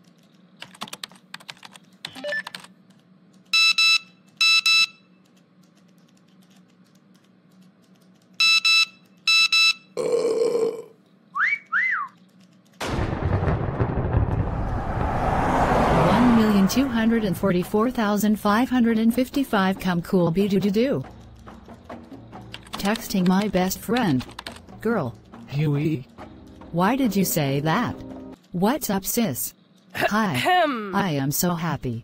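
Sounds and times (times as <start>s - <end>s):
computer keyboard clicks: 0.0s - 3.6s, 5.2s - 8.4s, 12.1s - 12.8s, 20.8s - 25.4s
rising and falling whistles: 11.3s - 12.2s
burst of noise: 12.8s - 17.4s
loud rushing noise: 13.9s - 17.8s.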